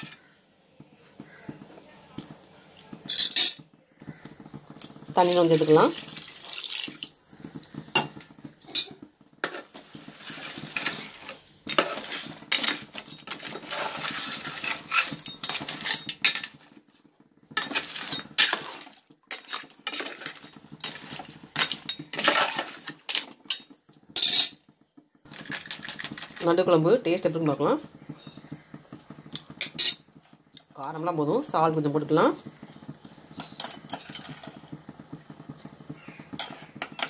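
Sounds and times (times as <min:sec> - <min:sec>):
ladle scraping pot: 0:03.0 - 0:16.8, 0:17.5 - 0:24.6
ladle clinking in metal pot: 0:03.1 - 0:03.6.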